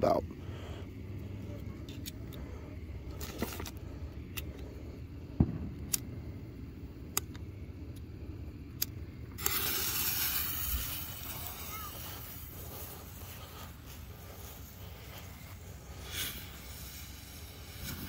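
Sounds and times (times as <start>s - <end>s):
fuse hissing: 0.0s - 18.0s
low rumble: 0.4s - 9.3s.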